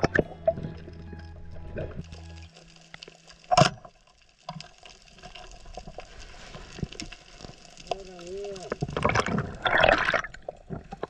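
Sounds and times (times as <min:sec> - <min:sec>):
faint clicks and crackles: 0:00.0 - 0:11.0.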